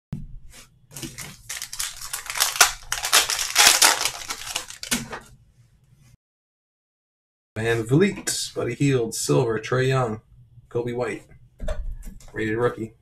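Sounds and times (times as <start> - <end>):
foil wrapper crinkling: 0.9 - 5.2.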